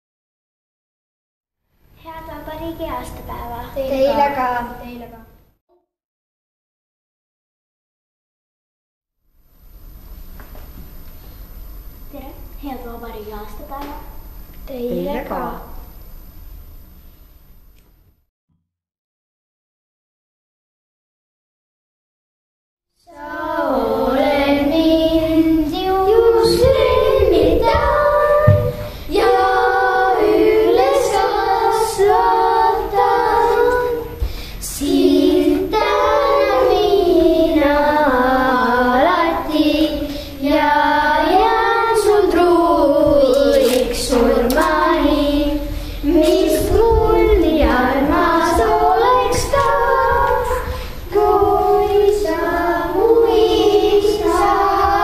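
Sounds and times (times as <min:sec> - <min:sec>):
children singing: 0:23.1 - 0:55.0.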